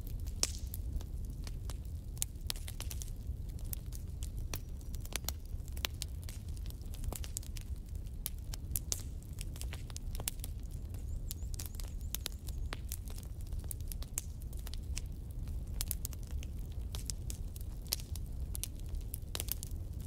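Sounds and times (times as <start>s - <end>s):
wood fire crackling: 0.0s - 20.0s.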